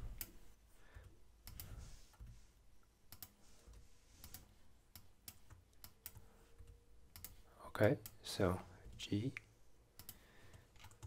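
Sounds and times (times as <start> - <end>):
computer mouse clicks: 1.0 - 2.4, 3.1 - 8.2, 9.3 - 11.0.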